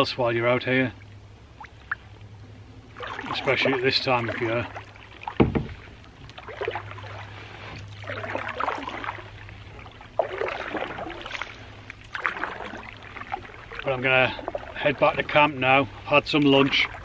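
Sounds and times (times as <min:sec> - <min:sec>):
paddle swishing through water: 0:02.9 - 0:17.0
low thump: 0:05.4 - 0:05.8.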